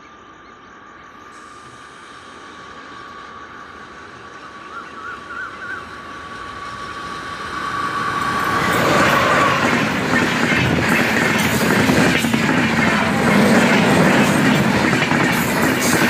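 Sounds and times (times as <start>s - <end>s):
train passing at high speed: 0.3s - 16.0s
train coaches clickety-clack: 4.2s - 16.0s.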